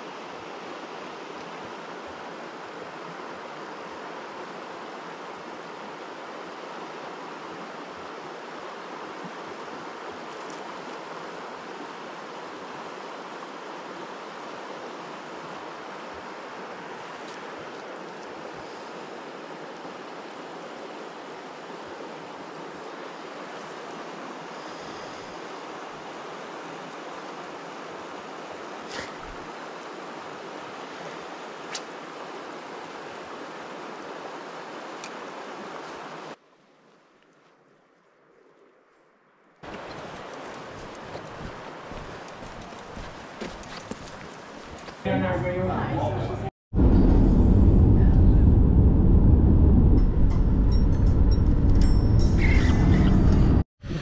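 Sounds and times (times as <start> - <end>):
river rushing over boulders: 0.0 - 36.4, 39.6 - 45.1.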